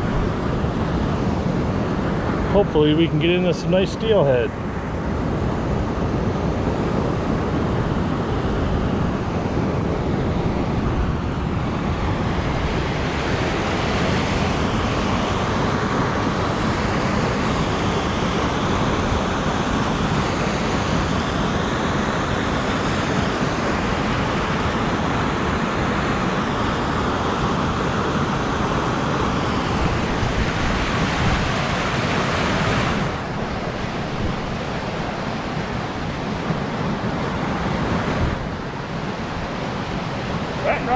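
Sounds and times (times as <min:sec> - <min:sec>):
river rushing over weir: 0:00.0 - 0:40.9.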